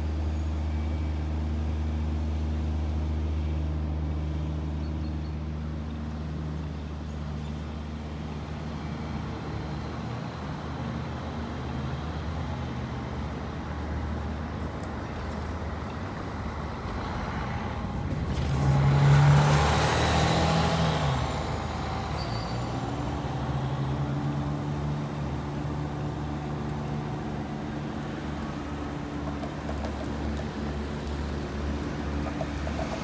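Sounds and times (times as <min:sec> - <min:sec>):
city traffic: 0:00.0 - 0:33.0
large vehicle passing: 0:16.4 - 0:29.1.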